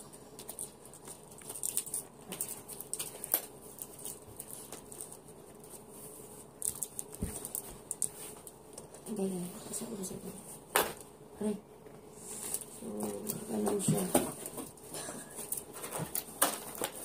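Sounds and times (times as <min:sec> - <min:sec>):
cardboard packaging rustling: 0:12.4 - 0:17.0.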